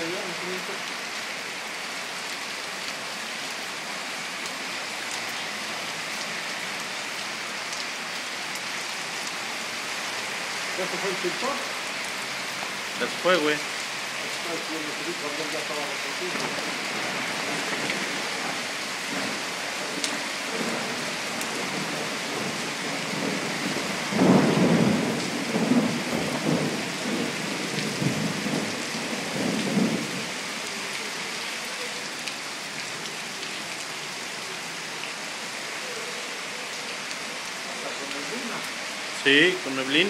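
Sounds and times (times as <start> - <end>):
rain hissing: 0.0 - 40.0
thunder rumbling: 16.3 - 30.4.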